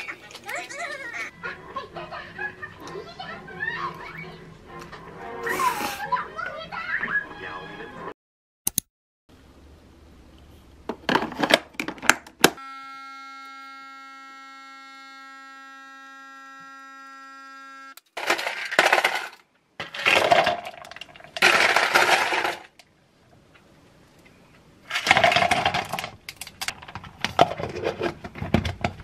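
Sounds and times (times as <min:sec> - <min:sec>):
ice clattering into plastic cup: 0:18.2 - 0:22.8, 0:24.9 - 0:26.2
ice cubes cracking from plastic tray: 0:18.2 - 0:22.8.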